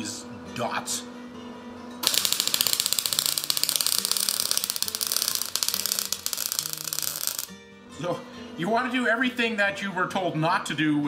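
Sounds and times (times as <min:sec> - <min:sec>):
welder arc crackling and sputtering: 0:02.0 - 0:07.6.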